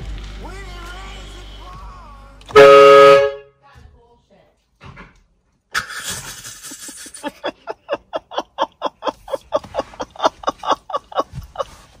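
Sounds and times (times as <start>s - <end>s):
air horn blast: 2.5s - 3.5s
woman laughing: 5.8s - 12.0s.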